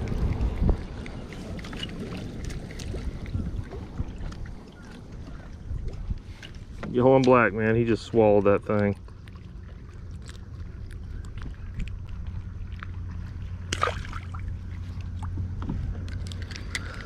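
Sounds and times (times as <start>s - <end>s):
wind and water rumble: 0.0s - 17.0s
fishing tackle clicks: 16.0s - 17.0s.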